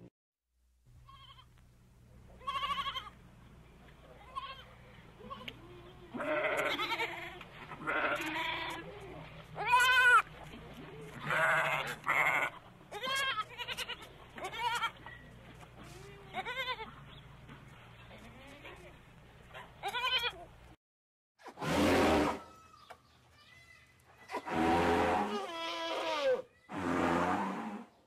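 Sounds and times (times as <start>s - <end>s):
goat kid bleating: 1.0s - 1.6s, 2.4s - 3.2s, 4.1s - 15.1s, 15.8s - 17.1s, 18.1s - 19.0s, 19.8s - 20.6s, 25.1s - 26.8s.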